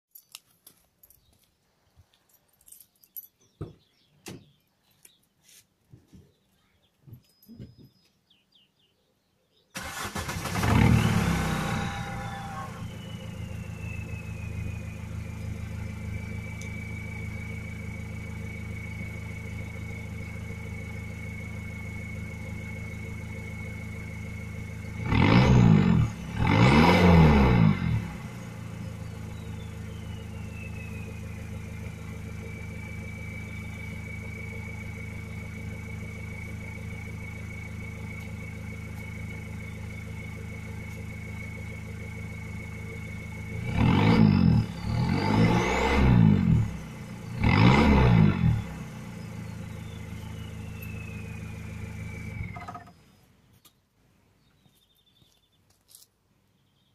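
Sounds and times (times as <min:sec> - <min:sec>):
diesel engine idling with whine: 0:09.7 - 0:53.5
engine revving: 0:09.8 - 0:52.9.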